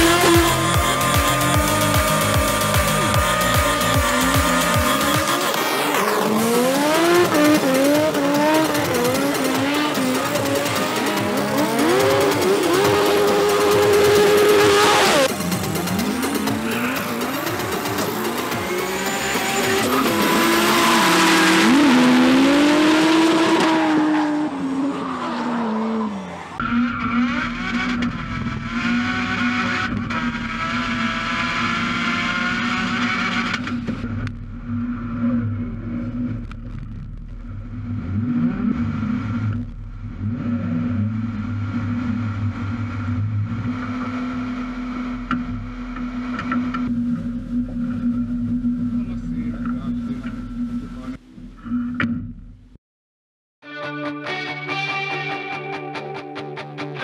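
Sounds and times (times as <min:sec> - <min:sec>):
car engine running with rough rumble: 0:00.0 - 0:23.8, 0:26.5 - 0:52.8
car engine revving hard: 0:00.0 - 0:36.4.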